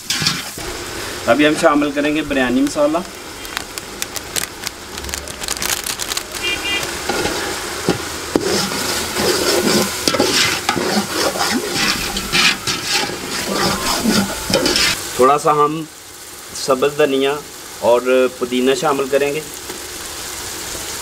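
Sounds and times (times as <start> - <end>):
food sizzling in oil: 0.0 - 21.0
metal skimmer scraping pot: 6.4 - 15.0.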